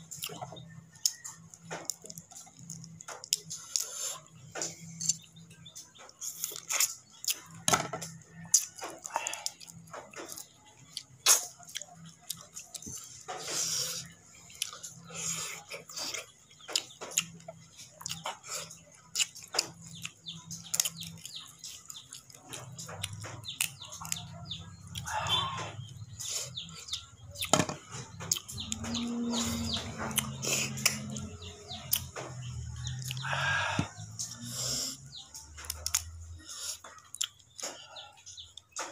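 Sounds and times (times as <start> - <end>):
bird calling: 24.9 - 27.5, 33.1 - 34.5.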